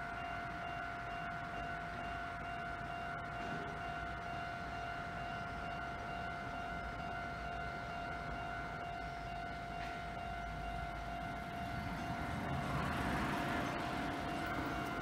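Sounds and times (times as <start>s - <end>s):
level-crossing alarm tone: 0.0s - 15.0s
train rushing rumble: 9.7s - 15.0s.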